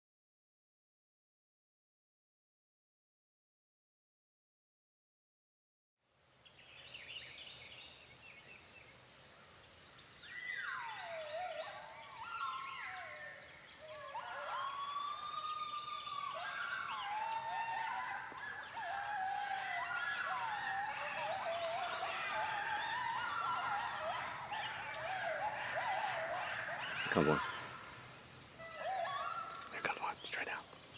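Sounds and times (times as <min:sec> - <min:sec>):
coyote howls and yips: 0:10.2 - 0:30.6.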